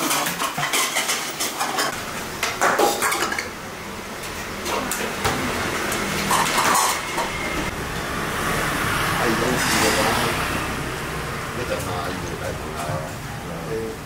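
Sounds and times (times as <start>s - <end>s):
dishes and utensils clattering: 0.0s - 3.6s, 4.6s - 7.7s.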